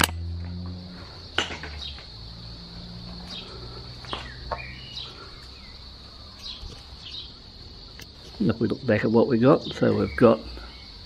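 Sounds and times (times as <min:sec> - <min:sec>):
high-pitched insect drone: 0:00.0 - 0:11.0
bird chirps: 0:03.1 - 0:11.0.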